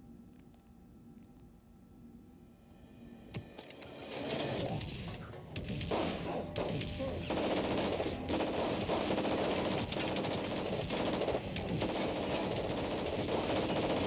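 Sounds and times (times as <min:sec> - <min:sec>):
automatic gunfire: 0:05.8 - 0:14.0.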